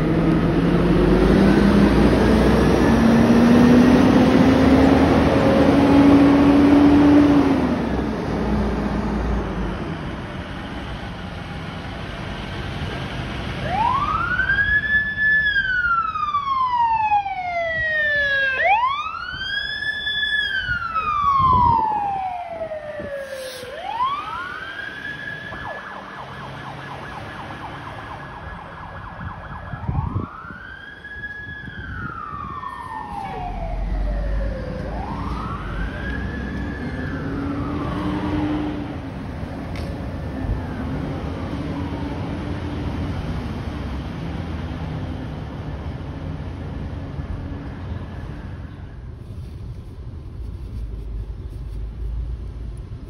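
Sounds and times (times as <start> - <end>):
emergency siren wailing: 0.0 - 10.2, 13.5 - 39.5
vehicle engine rumbling: 0.0 - 16.6, 28.3 - 53.0.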